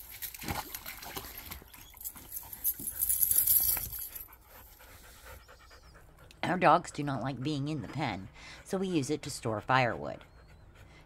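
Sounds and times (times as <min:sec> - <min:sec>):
water splashing: 0:00.0 - 0:02.1.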